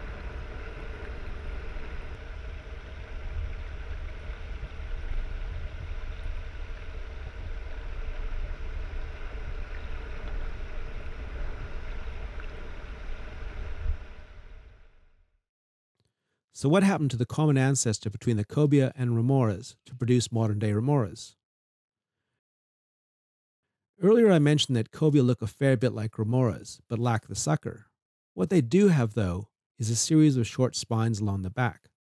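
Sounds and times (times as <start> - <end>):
faint hum tones: 0.0 - 15.2
underwater rumble of moving water: 0.0 - 15.2.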